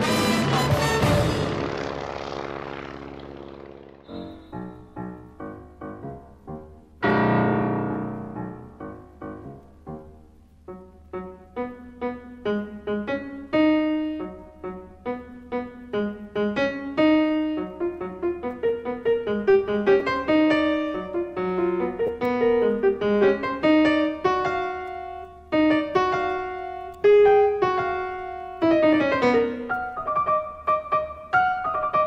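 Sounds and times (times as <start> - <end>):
piano music: 0.0 - 32.0.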